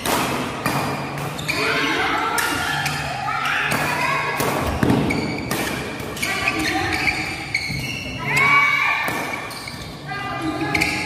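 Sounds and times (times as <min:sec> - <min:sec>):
rackets striking shuttlecock: 0:00.0 - 0:01.4, 0:03.6 - 0:06.3.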